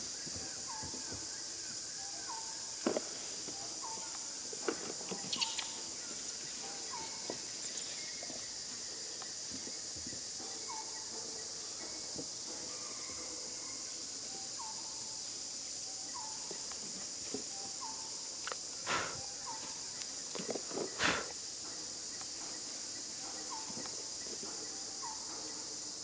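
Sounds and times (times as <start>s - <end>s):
high-pitched insect buzz: 3.3s - 8.5s, 14.5s - 25.2s.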